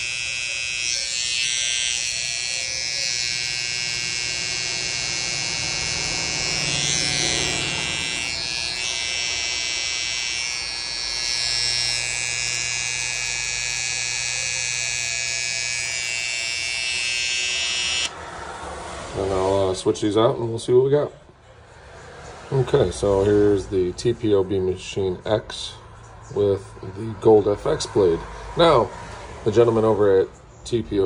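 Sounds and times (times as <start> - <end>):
electric hair trimmer buzzing: 0.0 - 18.2.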